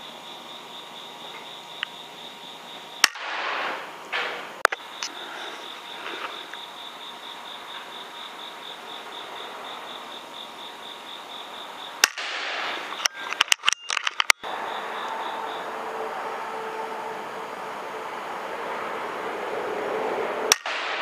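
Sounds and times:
steady hiss: 0:00.0 - 0:13.5
air rifle shot: 0:03.0 - 0:04.5, 0:12.0 - 0:13.0, 0:20.5 - 0:21.0
faint high pulsing chirp: 0:12.8 - 0:15.8.

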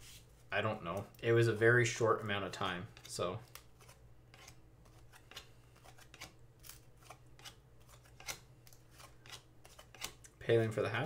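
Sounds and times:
trading cards flipping: 0:02.6 - 0:10.3.

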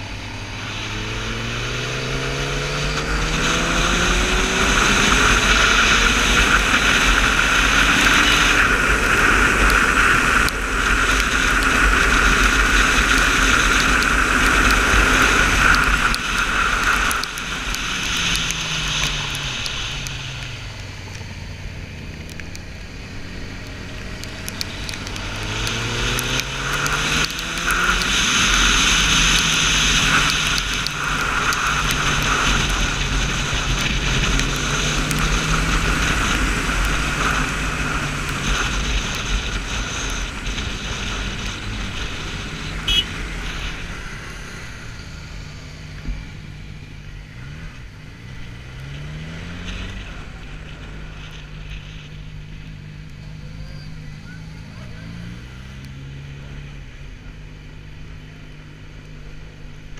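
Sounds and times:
motorcycle engine revving: 0:00.0 - 0:59.9
wind rush over microphone: 0:24.2 - 0:46.3.

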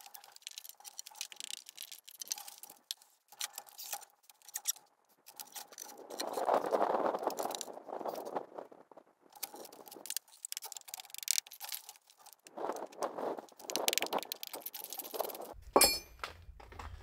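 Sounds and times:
short metallic ring: 0:15.8 - 0:16.2.

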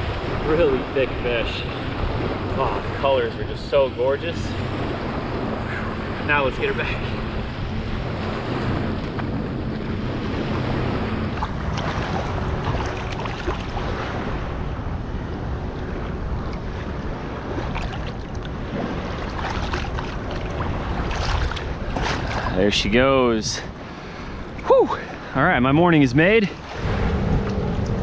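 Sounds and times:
small waves washing on shore: 0:00.0 - 0:28.0
wind buffeting microphone: 0:00.0 - 0:28.0
splashing in shallow water: 0:11.3 - 0:14.5, 0:17.4 - 0:22.6.

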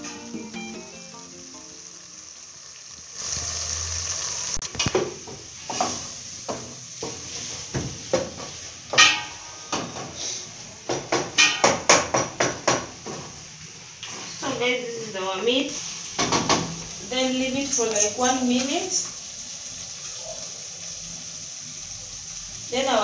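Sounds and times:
background music: 0:00.0 - 0:02.3
food sizzling: 0:00.0 - 0:23.0
spoon scraping and knocking a pot: 0:05.7 - 0:10.1, 0:11.1 - 0:13.2.

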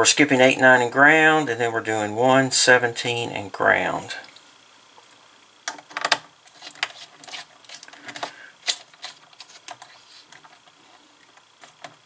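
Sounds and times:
rustling of wires handled: 0:05.7 - 0:12.0.

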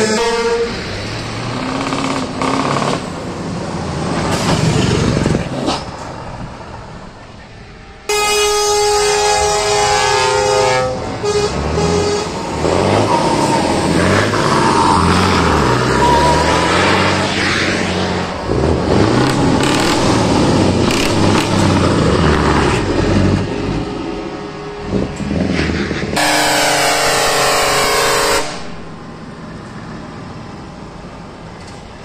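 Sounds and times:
truck air horn chord: 0:08.1 - 0:12.4, 0:26.2 - 0:28.9
diesel truck exhaust revving: 0:08.4 - 0:29.3.

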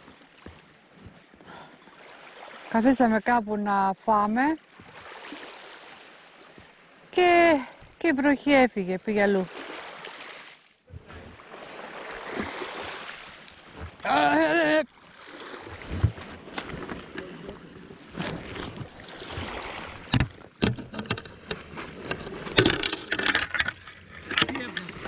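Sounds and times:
water sloshing around kayak: 0:00.0 - 0:03.4, 0:04.1 - 0:25.0
knocks on hull: 0:15.8 - 0:17.2, 0:18.2 - 0:23.4.

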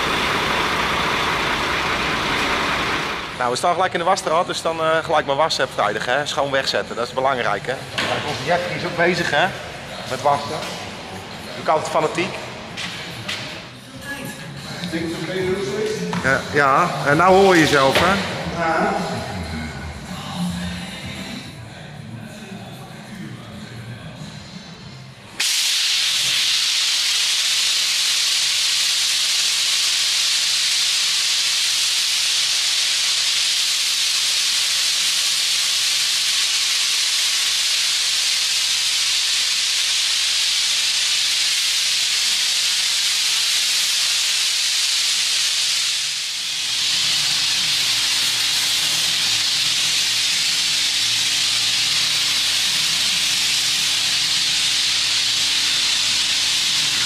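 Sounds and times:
pressure washer spraying hiss: 0:00.0 - 0:04.8, 0:14.8 - 0:19.2, 0:25.4 - 0:57.0.

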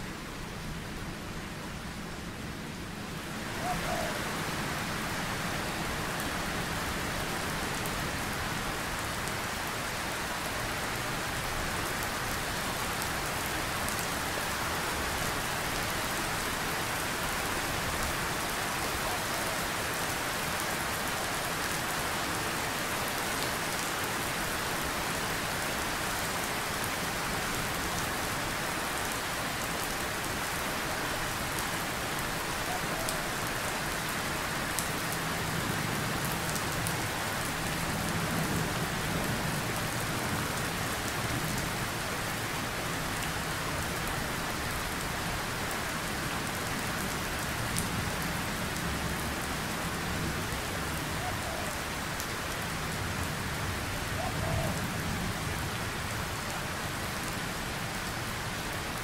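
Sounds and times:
heavy rain falling: 0:00.0 - 0:59.0.

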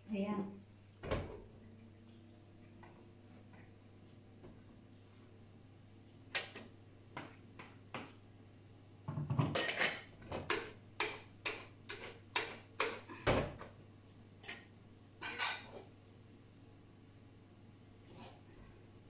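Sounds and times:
cookware and utensils clinking: 0:09.1 - 0:13.6, 0:14.4 - 0:16.0.

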